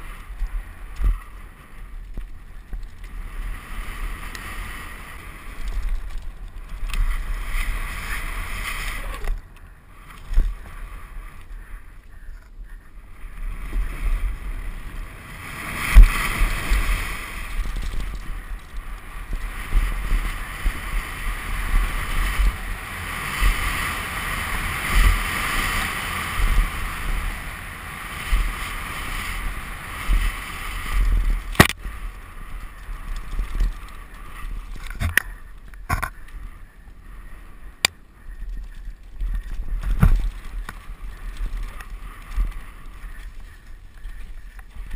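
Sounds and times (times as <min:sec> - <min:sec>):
tyres rumbling over dirt trail: 0:00.0 - 0:44.9
bike knocks and rattles: 0:34.7 - 0:36.2.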